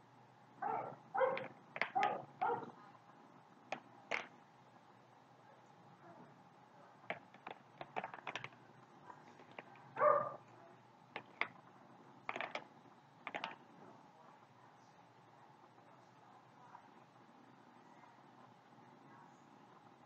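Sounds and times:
plastic clicks and taps: 0:01.3 - 0:02.2, 0:03.7 - 0:04.3, 0:07.1 - 0:08.6, 0:11.2 - 0:11.6, 0:12.3 - 0:13.6.

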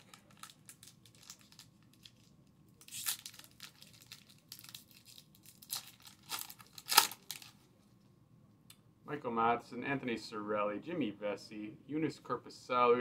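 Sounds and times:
plastic wrapper tearing and crinkling: 0:00.0 - 0:07.6.

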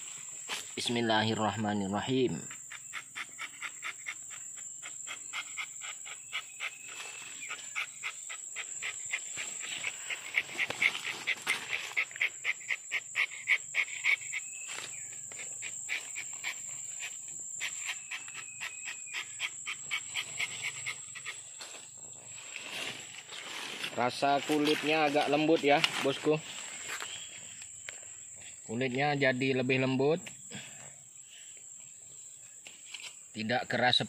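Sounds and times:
high-pitched insect drone: 0:00.0 - 0:34.0
knife scraping bark: 0:02.5 - 0:26.2.

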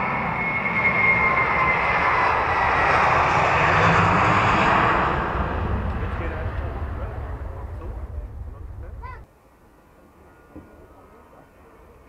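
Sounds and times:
jet engines at takeoff: 0:00.0 - 0:09.2.

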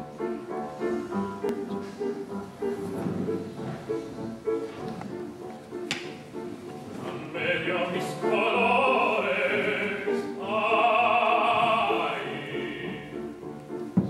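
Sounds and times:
grand piano: 0:00.0 - 0:14.0
operatic tenor singing: 0:07.0 - 0:13.4.

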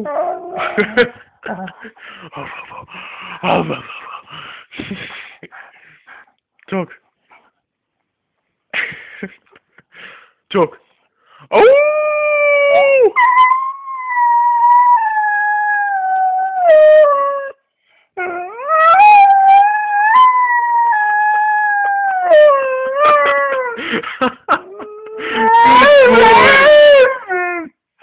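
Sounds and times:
dog howling: 0:18.3 - 0:23.5, 0:25.0 - 0:27.7
dog whimpering: 0:25.1 - 0:27.7.

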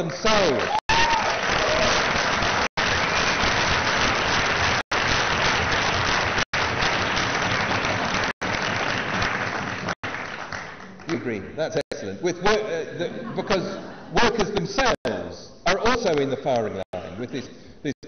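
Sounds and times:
large audience applauding: 0:00.0 - 0:11.2.

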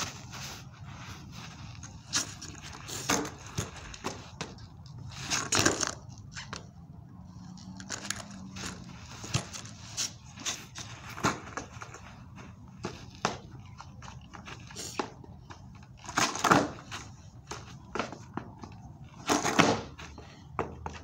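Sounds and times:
footsteps shuffling on turf: 0:00.0 - 0:04.3
skateboard knocks and clacks: 0:16.1 - 0:19.9.

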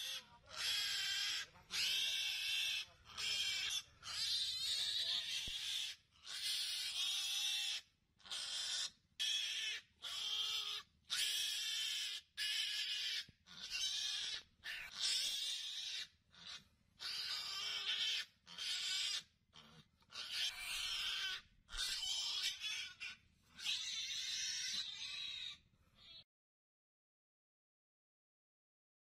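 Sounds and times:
pig squealing: 0:00.0 - 0:26.2.

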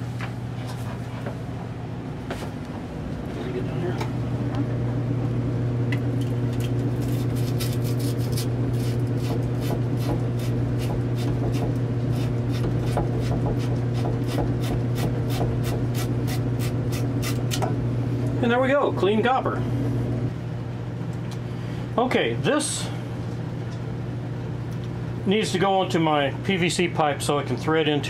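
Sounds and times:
steady low hum: 0:00.0 - 0:28.0
wire brush scraping copper tube: 0:07.0 - 0:09.7.

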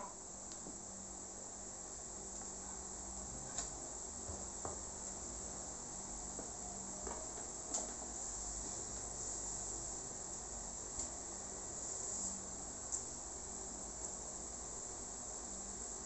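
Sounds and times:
steady high hiss: 0:00.0 - 0:16.0.

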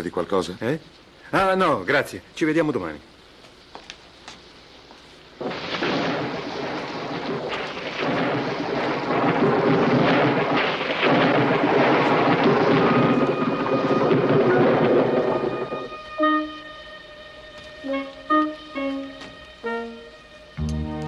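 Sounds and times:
heavy rain: 0:00.0 - 0:21.0
thunder rumbling: 0:05.4 - 0:21.0
held musical tone: 0:15.3 - 0:21.0.

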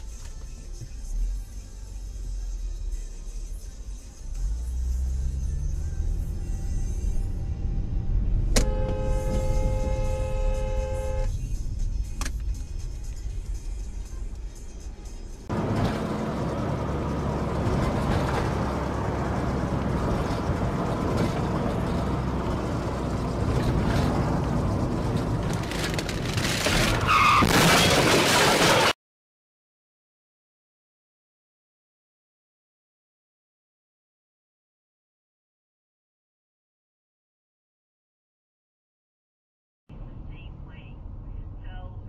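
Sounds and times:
road and engine rumble: 0:00.0 - 0:29.0, 0:39.9 - 0:42.0
car horn blast: 0:08.5 - 0:11.4
tyre screech: 0:26.8 - 0:27.5.

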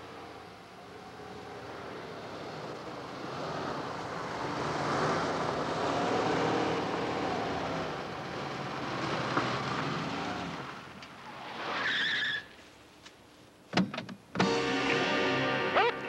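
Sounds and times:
car engines running: 0:00.0 - 0:11.2
tyre squeal: 0:11.5 - 0:12.6.

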